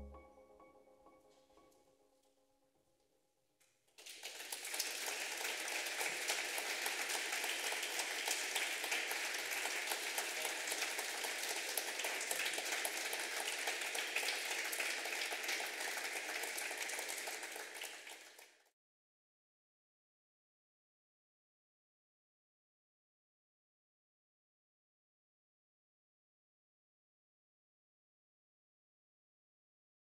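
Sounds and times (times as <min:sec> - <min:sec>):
audience applauding: 0:04.0 - 0:18.6.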